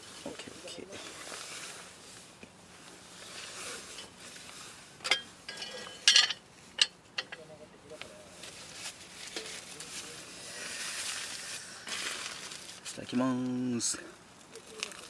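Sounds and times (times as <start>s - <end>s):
metal cookware clinking: 5.0s - 7.4s.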